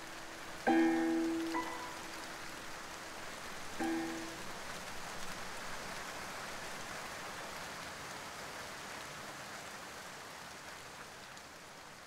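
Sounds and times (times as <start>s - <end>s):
rain pattering on leaves: 0.0s - 12.0s.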